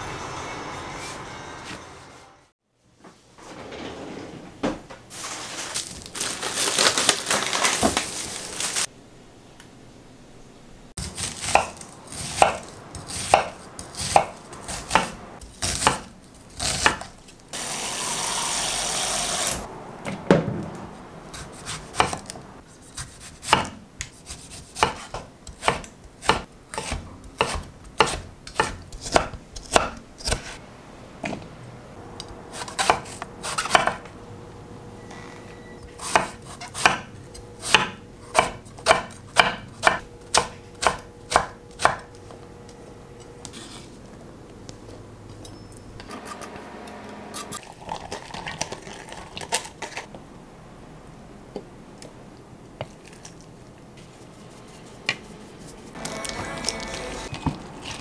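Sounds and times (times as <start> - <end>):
knife chopping on cutting board: 11.0 - 17.1, 23.0 - 30.6, 36.0 - 42.1
loud hissing noise: 17.6 - 19.7.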